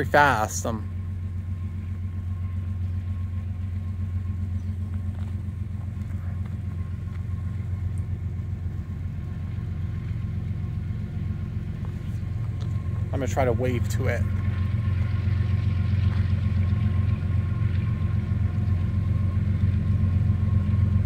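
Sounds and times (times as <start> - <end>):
diesel locomotive engine drone: 0.0 - 21.0.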